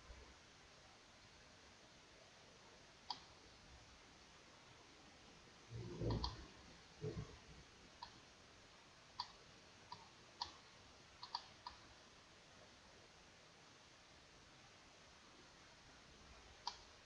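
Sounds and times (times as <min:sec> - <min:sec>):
computer mouse clicking: 0:03.0 - 0:03.4, 0:06.0 - 0:06.4, 0:08.0 - 0:08.2, 0:09.2 - 0:10.6, 0:11.2 - 0:11.8, 0:16.6 - 0:16.9.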